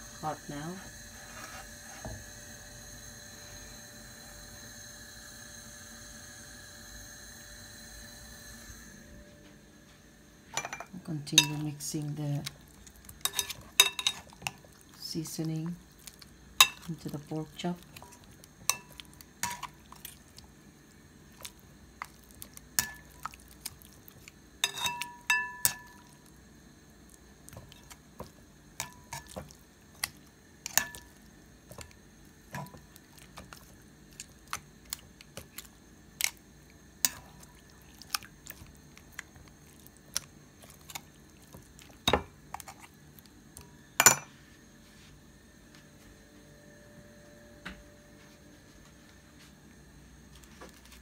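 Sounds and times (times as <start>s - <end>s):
metal tongs clinking on glass bowl: 10.6s - 11.7s, 13.2s - 14.3s, 16.6s - 16.9s, 24.6s - 26.0s.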